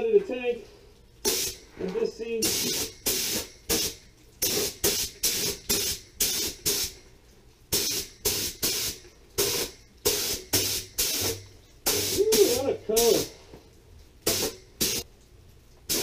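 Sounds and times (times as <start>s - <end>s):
paint spray gun hissing bursts: 1.3s - 1.6s, 2.4s - 6.9s, 7.7s - 13.3s, 14.3s - 15.0s.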